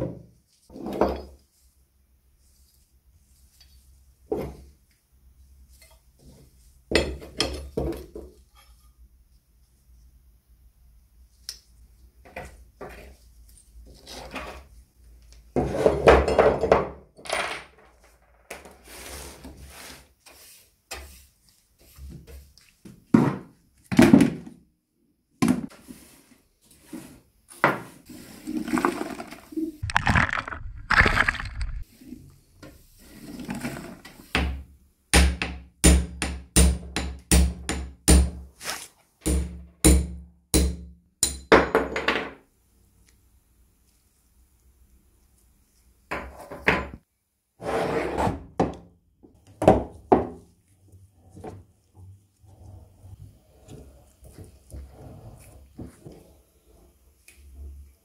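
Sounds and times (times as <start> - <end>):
brush sweeping wood into bucket: 18.7 - 23.1, 25.7 - 29.8, 30.9 - 34.3, 38.5 - 39.1.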